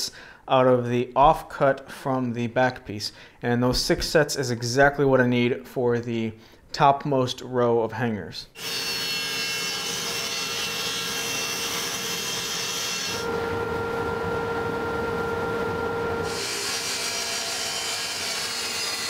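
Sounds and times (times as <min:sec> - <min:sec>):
power saws cutting plywood: 0:08.6 - 0:13.4, 0:16.2 - 0:19.0
steady hum: 0:13.2 - 0:17.6.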